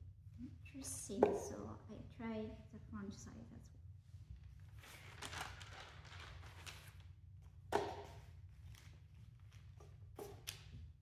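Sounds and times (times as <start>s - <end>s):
steady low hum: 0.0s - 11.0s
paper rustling: 4.7s - 7.0s.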